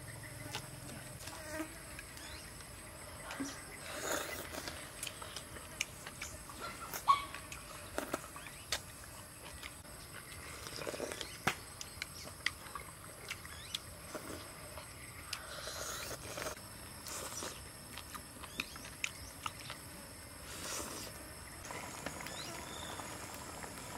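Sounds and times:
wet chewing: 3.9s - 19.9s
slurping: 15.3s - 19.7s, 20.4s - 21.2s.

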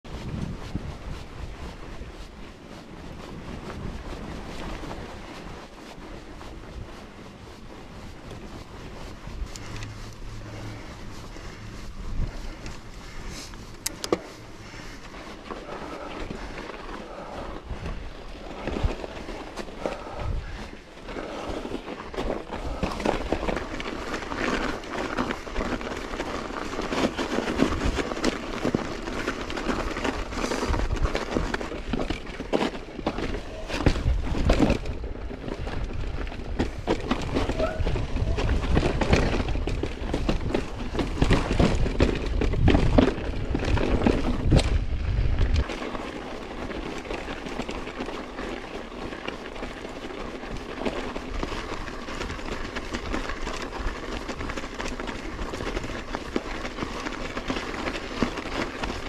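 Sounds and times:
wind buffeting microphone: 0.0s - 26.1s, 29.4s - 47.1s
bike riding on packed snow: 0.0s - 59.0s.

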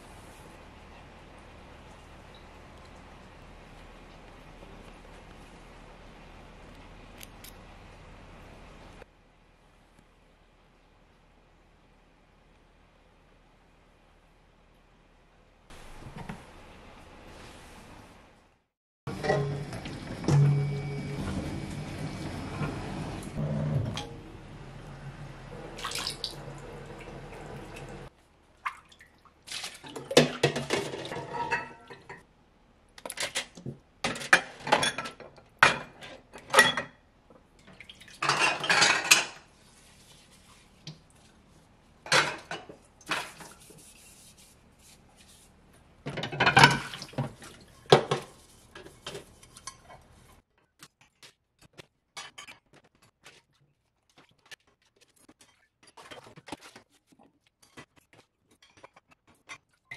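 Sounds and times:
dishes clattering in a sink: 19.1s - 20.8s, 29.6s - 32.2s, 33.1s - 37.0s, 37.7s - 39.5s, 42.0s - 43.6s, 46.0s - 50.0s
running water: 24.8s - 30.8s
water splashing: 25.6s - 30.5s.

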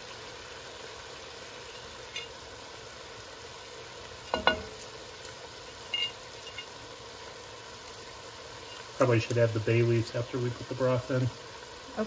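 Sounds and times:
meat sizzling in a pot: 0.0s - 12.0s
sharp knock on a pot: 4.3s - 4.8s.

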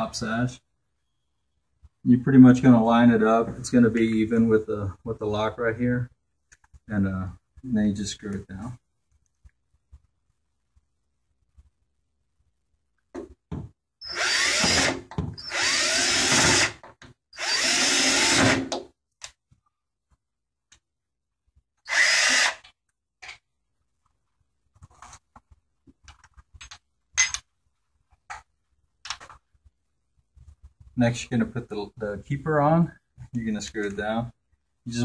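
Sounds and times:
cordless drill driving screws: 14.0s - 16.8s, 17.4s - 18.8s, 21.9s - 22.7s.

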